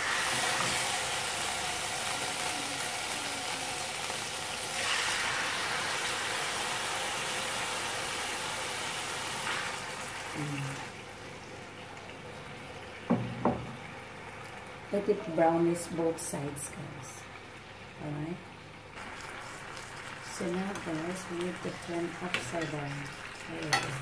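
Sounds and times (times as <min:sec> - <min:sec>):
chicken sizzling in frying pan: 0:00.0 - 0:11.6, 0:18.9 - 0:24.0.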